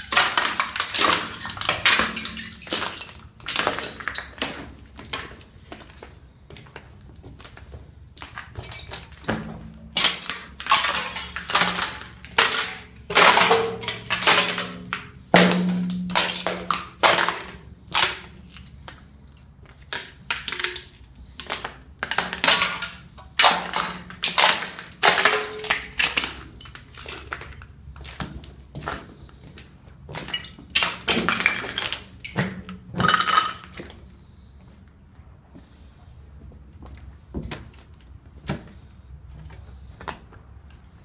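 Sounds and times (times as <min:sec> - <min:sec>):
ice shards clinking: 0:00.0 - 0:04.3, 0:09.9 - 0:18.9, 0:33.0 - 0:33.8
thin ice cracking and crunching: 0:10.0 - 0:27.5.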